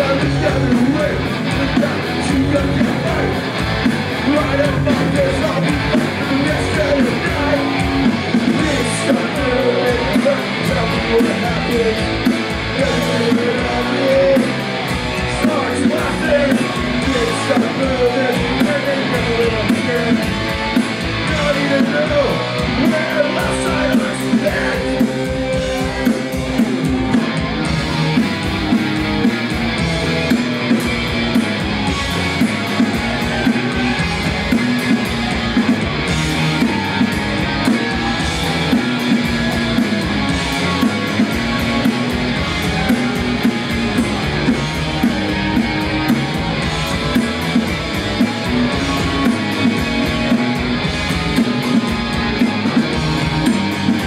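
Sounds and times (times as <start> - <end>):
person singing: 0.0 - 3.4, 4.2 - 14.6, 15.2 - 20.5, 21.2 - 26.6
bass guitar: 0.0 - 54.0
drums: 0.0 - 54.0
electric guitars: 0.0 - 54.0.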